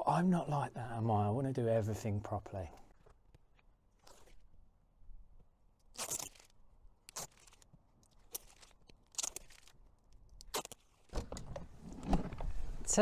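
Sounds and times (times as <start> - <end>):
protective film tearing off: 5.9 - 9.7, 10.4 - 11.2.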